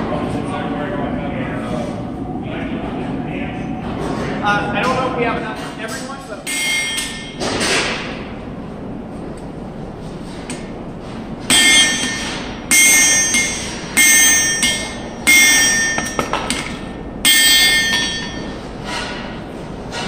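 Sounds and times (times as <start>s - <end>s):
metal clangs ringing: 6.5s - 8.1s, 11.5s - 20.0s.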